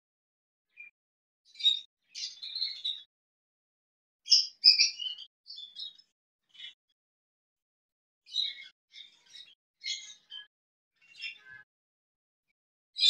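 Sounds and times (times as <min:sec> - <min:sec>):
budgerigars chirping: 0:04.3 - 0:05.9.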